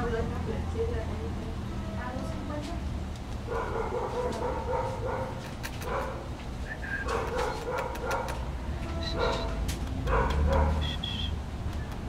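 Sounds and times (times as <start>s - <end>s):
puppy barking: 3.5s - 6.3s, 7.0s - 11.4s
sharp clicks: 5.4s - 6.1s, 11.7s - 12.0s.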